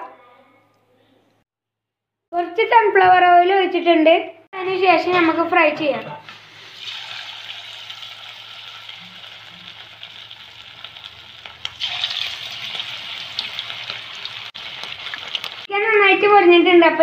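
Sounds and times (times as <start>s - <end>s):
chicken sizzling in hot oil: 6.2s - 15.7s.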